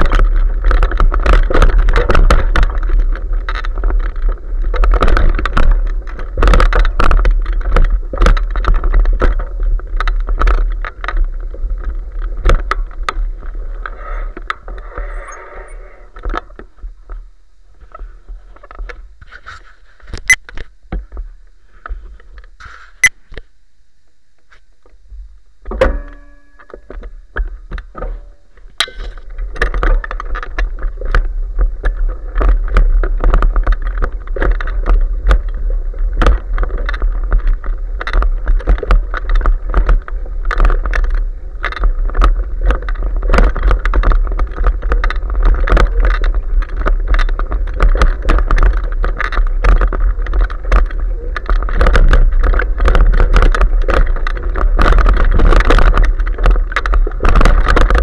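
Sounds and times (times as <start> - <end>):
bicycle rattling over dry leaves: 0.0 - 20.1, 25.9 - 58.0
brief squeak: 14.0 - 16.1.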